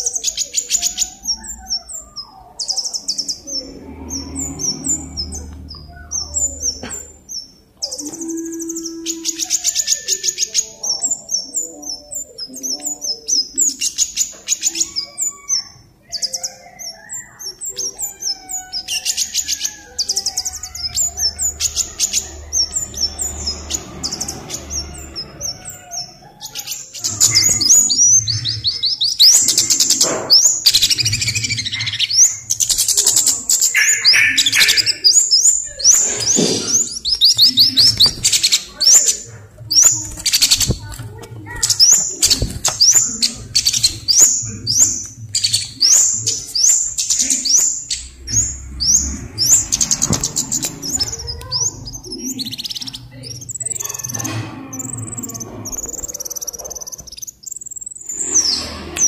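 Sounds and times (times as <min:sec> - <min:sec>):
bird calling with ticking notes: 0:25.7 - 0:35.9.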